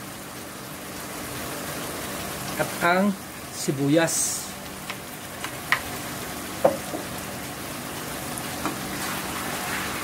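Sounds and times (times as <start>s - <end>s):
food sizzling in a frying pan: 0.0s - 10.0s
utensil knocks against pan: 6.6s - 7.1s.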